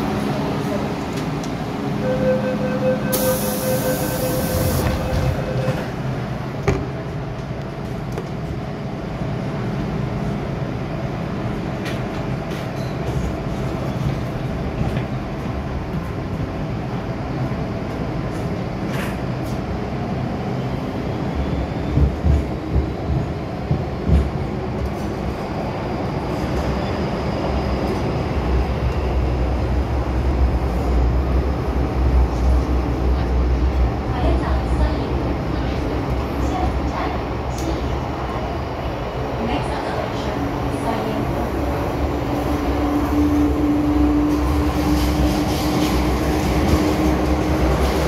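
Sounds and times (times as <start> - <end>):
train wheels rumbling: 0.0 - 48.0
air hiss: 3.1 - 4.8.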